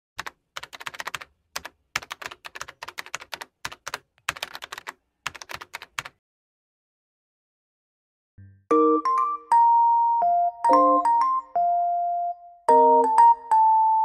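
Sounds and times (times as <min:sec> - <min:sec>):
keyboard typing: 0:00.2 - 0:06.2.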